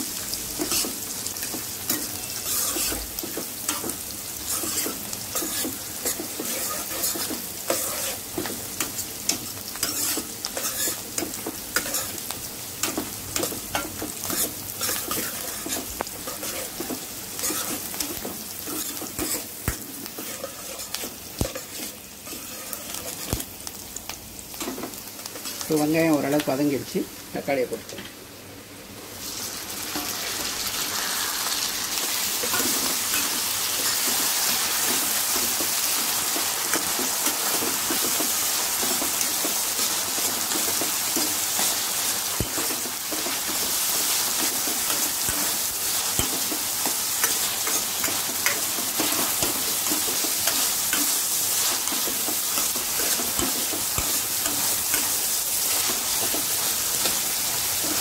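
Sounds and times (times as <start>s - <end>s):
vegetables sizzling in oil: 0.0s - 58.0s.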